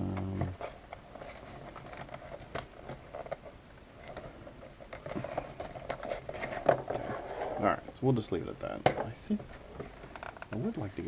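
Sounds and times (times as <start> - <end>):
cardboard box and tape crinkling: 0.5 - 8.0.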